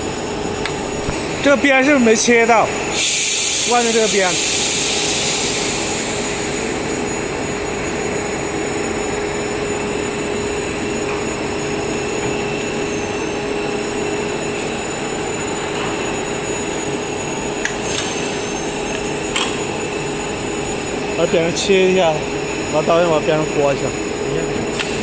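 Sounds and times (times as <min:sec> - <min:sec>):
stretch film machine running: 0:24.2 - 0:25.0.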